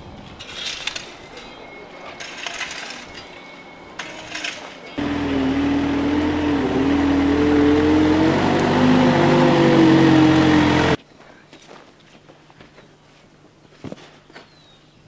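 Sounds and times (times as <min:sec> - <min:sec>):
forklift engine running under load: 0:05.0 - 0:11.0.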